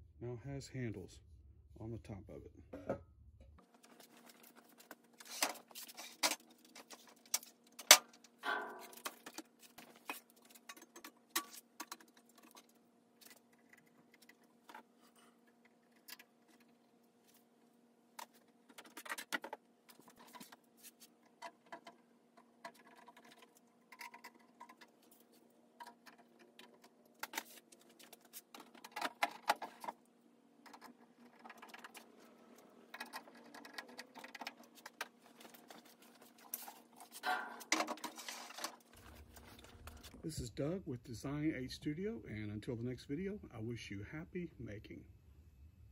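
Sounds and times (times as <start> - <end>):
faint steady hum: 0.0 - 45.9
cables being handled: 3.6 - 40.4
metal box clicks and knocks: 7.3 - 9.5.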